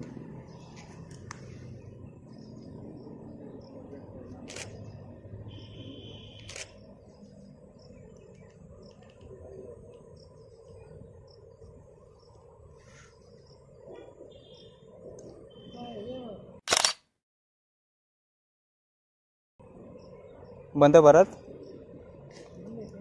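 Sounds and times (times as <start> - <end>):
insects chirping: 0.1 - 16.5, 19.6 - 23.0
camera shutter clicking: 4.4 - 4.8, 6.3 - 6.8, 16.7 - 17.0
buzzing insect call: 4.6 - 9.2.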